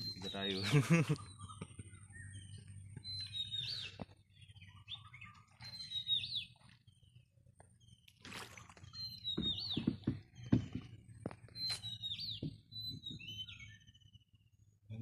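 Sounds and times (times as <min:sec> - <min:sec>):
small bird chirps: 0:00.0 - 0:15.0
bird whistled call: 0:11.6 - 0:14.2.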